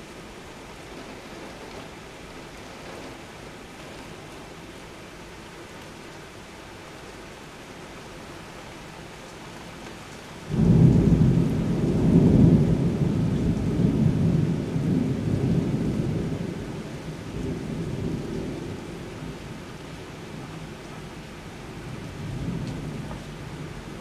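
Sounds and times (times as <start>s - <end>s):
thunder rumbling: 0.0s - 4.6s, 10.4s - 24.0s
steady rain: 0.0s - 24.0s.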